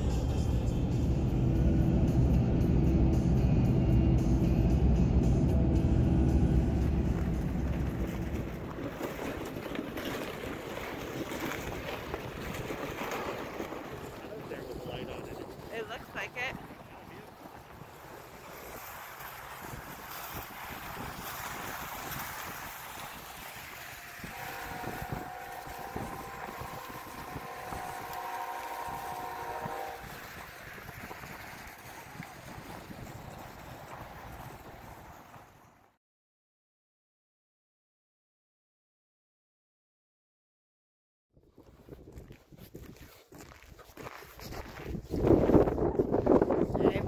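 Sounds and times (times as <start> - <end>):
wind on microphone: 4.8 - 35.4, 41.4 - 47.0
sled scraping over crusty snow: 6.4 - 35.9, 41.5 - 47.0
steady multi-tone whine: 23.6 - 30.1
footsteps in snow: 41.6 - 46.6.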